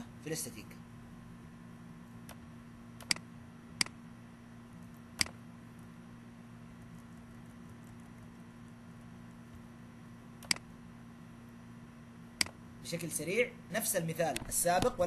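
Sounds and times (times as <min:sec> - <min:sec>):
low electrical hum and hiss: 0:00.0 - 0:15.0
computer mouse clicks: 0:03.0 - 0:04.0, 0:04.8 - 0:05.4, 0:10.4 - 0:10.7.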